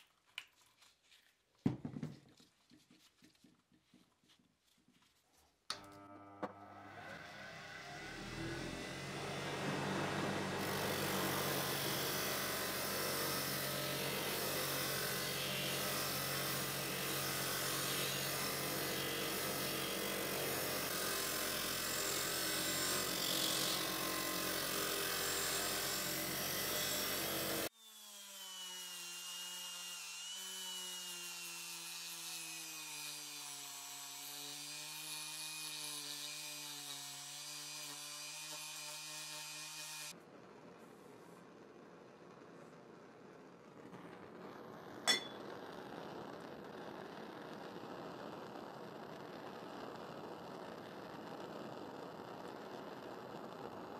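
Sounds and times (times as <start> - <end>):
bench grinder motor hum: 5.7 - 40.1
rotary tool high whine: 5.7 - 40.2, 45.1 - 45.5.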